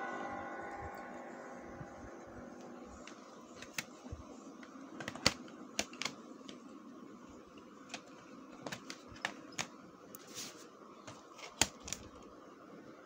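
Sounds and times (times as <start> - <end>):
faint steady hum: 0.0 - 13.0
plastic cases clicking: 5.0 - 6.6, 7.9 - 9.8, 11.1 - 12.2.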